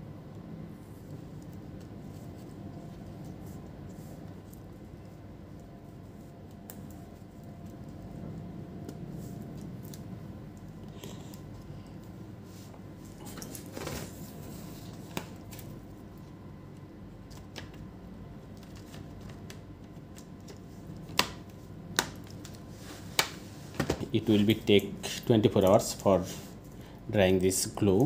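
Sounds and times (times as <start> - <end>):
steady hum: 0.0 - 28.0
laptop handling rustles and clicks: 17.2 - 24.1.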